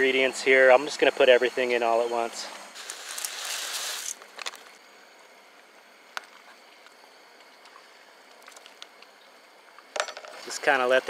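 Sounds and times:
dry pasta pouring rustle: 2.8s - 4.2s.

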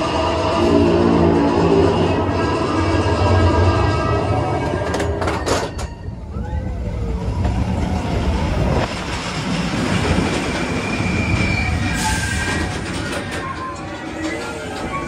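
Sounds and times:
roller coaster wheels rumbling: 0.0s - 15.0s
high wheel squeal: 10.5s - 15.0s.

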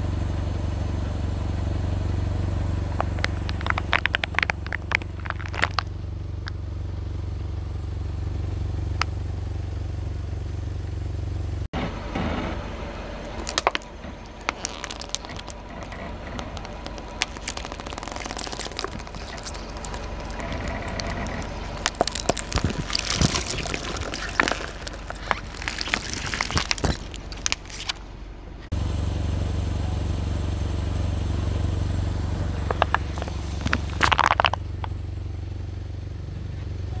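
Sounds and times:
car engine rumble: 0.0s - 37.0s
tyre crushing plastic bottles: 2.9s - 6.6s, 13.2s - 28.0s, 32.6s - 34.9s.

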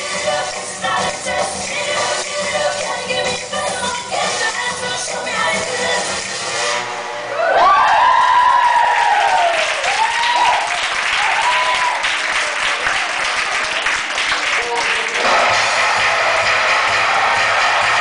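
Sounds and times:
high whoops: 7.3s - 12.2s
audience clapping and cheering: 7.3s - 18.0s
music with bass beat: 15.0s - 18.0s.

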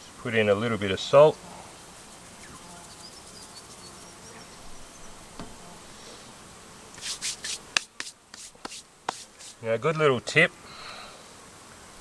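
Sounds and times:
flies buzzing: 0.0s - 12.0s
hands rubbing in flour: 7.0s - 9.6s.

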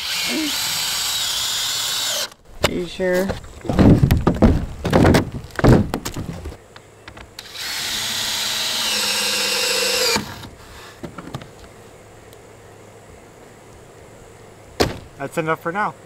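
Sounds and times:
cordless drill driving a screw: 0.0s - 2.4s, 7.4s - 10.5s.

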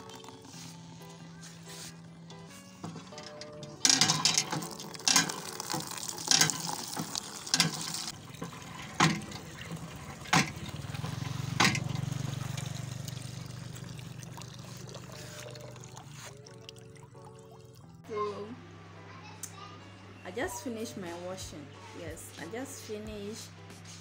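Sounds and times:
hand pump metal clank: 2.3s - 12.8s
water splashing into bucket: 3.8s - 17.8s.

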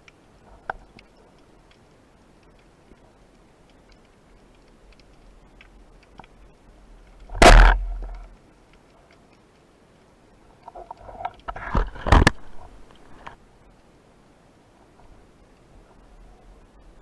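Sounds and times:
sharp clicks and knocks: 7.0s - 9.6s
speargun firing underwater: 7.3s - 8.2s.

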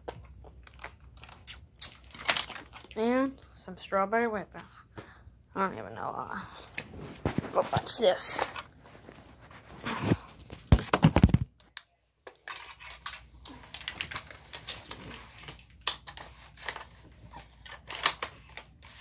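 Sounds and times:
phone knocking and rustling: 10.0s - 11.6s.

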